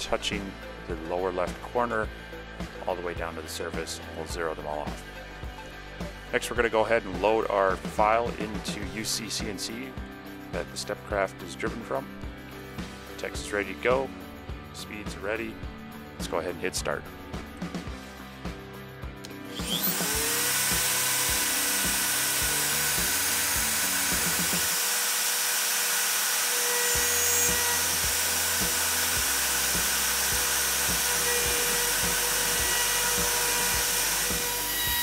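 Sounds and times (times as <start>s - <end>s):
background music: 0.0s - 35.0s
router spindle whine: 19.3s - 35.0s.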